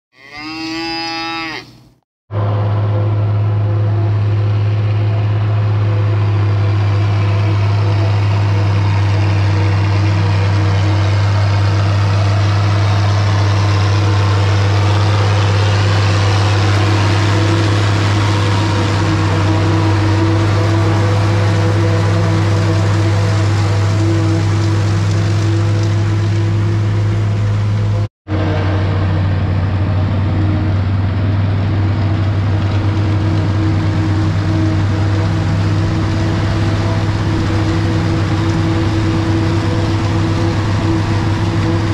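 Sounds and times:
cow mooing: 0:00.1 - 0:01.8
diesel tractor drone: 0:00.2 - 0:41.9
forage harvester chopping corn: 0:04.6 - 0:41.9.

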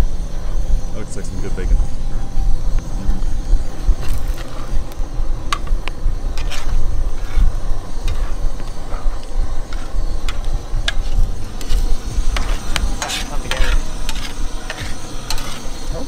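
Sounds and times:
steady low rumble: 0:00.0 - 0:16.0
metal spatula scraping on grill: 0:06.3 - 0:16.0.

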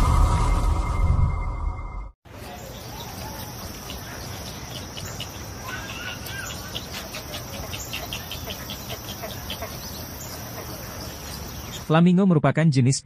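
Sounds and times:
flock of birds chirping: 0:02.3 - 0:11.9.

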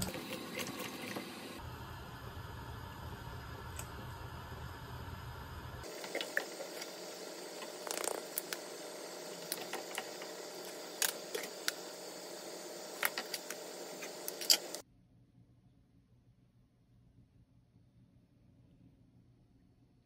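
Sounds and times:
broth simmering with small pops: 0:02.3 - 0:05.1, 0:05.8 - 0:14.8.

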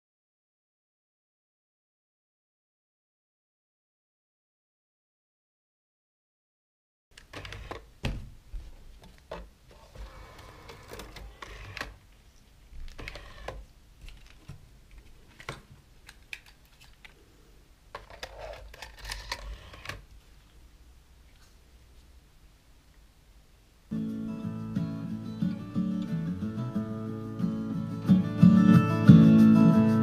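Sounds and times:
minidisc mechanism clicks and whirs: 0:10.1 - 0:12.0, 0:12.8 - 0:14.5, 0:17.9 - 0:20.1.

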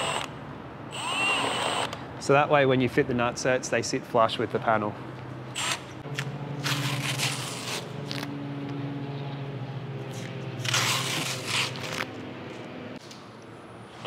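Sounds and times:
masking tape tearing off: 0:05.6 - 0:08.3, 0:10.2 - 0:12.2
low hum: 0:06.0 - 0:13.8.

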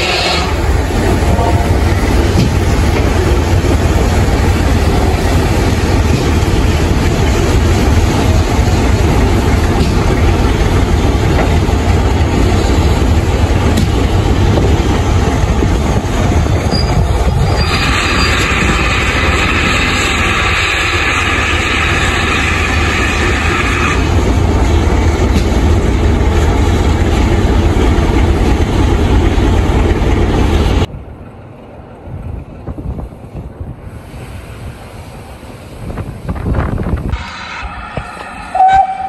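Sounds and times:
steam train rumble: 0:00.0 - 0:39.0
steam hiss: 0:17.5 - 0:24.2, 0:33.8 - 0:36.2
wind on microphone: 0:35.7 - 0:37.2.

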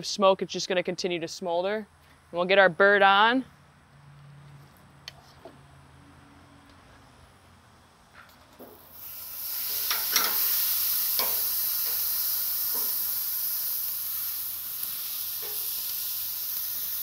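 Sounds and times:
chicken sizzling on grill: 0:08.6 - 0:17.0
metal tongs clicking: 0:09.9 - 0:10.5, 0:11.2 - 0:12.0.

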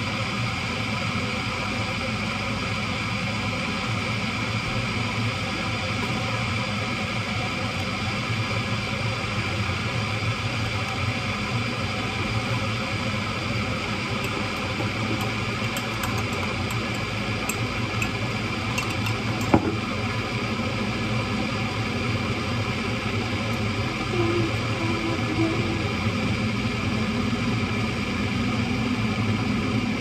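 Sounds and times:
droning hum: 0:00.0 - 0:30.0
teaspoon clinking against a mug: 0:14.2 - 0:19.6.

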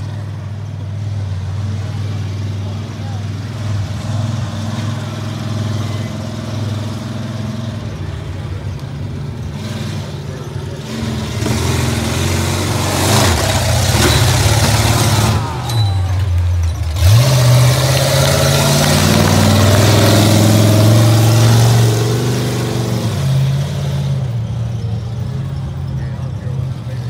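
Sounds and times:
monster truck engine revving: 0:00.0 - 0:27.0.

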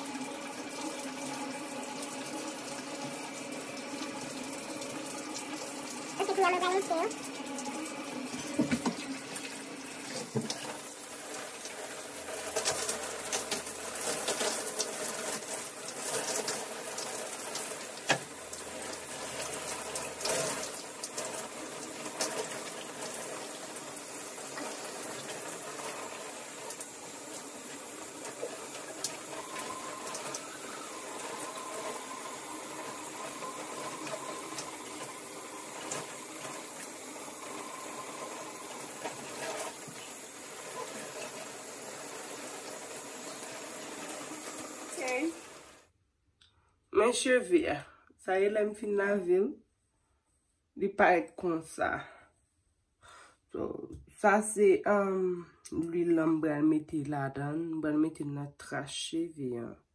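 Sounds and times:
shower spray running: 0:00.0 - 0:45.9.

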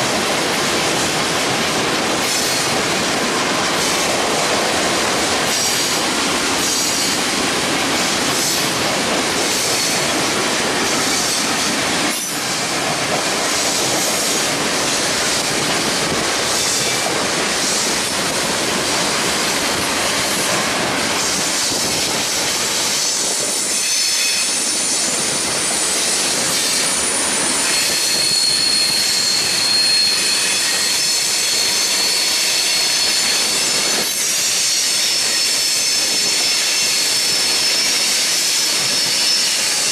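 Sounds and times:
freight train rolling past: 0:00.0 - 0:39.9
high wheel squeal: 0:23.5 - 0:39.9.

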